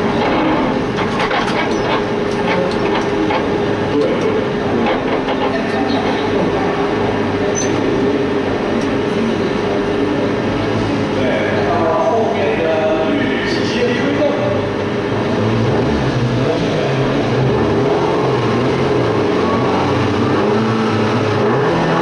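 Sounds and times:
race car engine running: 0.0s - 22.0s
clicks and rattles: 0.1s - 6.4s.

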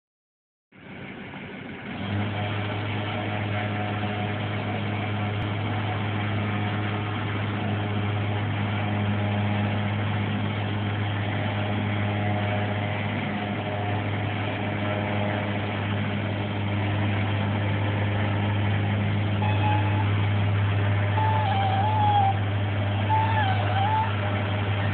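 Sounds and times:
boat loader motor humming: 0.7s - 24.9s.

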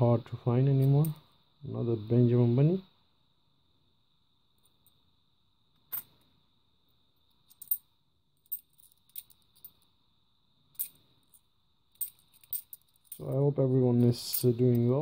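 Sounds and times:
faint high-pitched whine: 0.0s - 15.0s
coins clinking together: 7.5s - 9.8s, 10.7s - 11.4s, 12.0s - 13.4s, 14.0s - 15.0s.

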